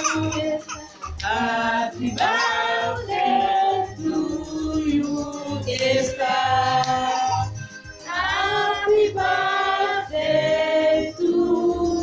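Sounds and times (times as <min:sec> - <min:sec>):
children and adults singing: 0:00.0 - 0:12.0.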